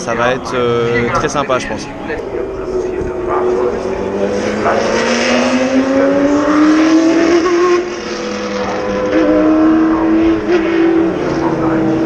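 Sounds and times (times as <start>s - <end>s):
racing car engine accelerating: 1.8s - 12.0s.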